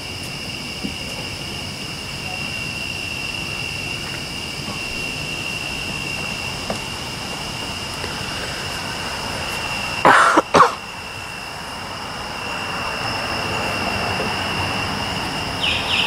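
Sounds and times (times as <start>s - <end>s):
night insects chirring: 0.0s - 16.0s
person coughing: 10.1s - 10.8s.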